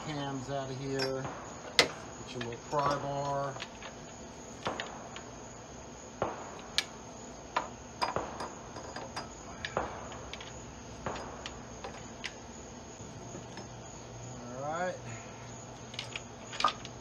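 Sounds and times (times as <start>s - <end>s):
metal taps and knocks: 0.9s - 4.0s, 7.5s - 12.4s.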